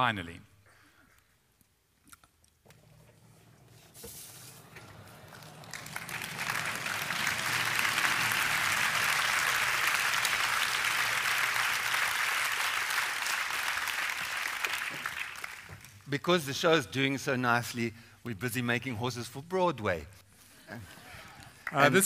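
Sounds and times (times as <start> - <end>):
large audience applauding: 4.5 - 16.1, 21.4 - 22.0.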